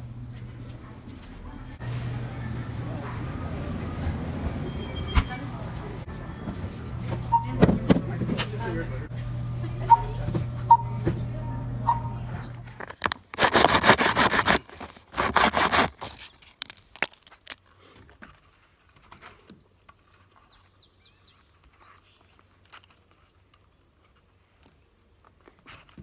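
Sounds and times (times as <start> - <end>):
barcode scanner beeping: 7.2 - 8.0, 9.9 - 11.0.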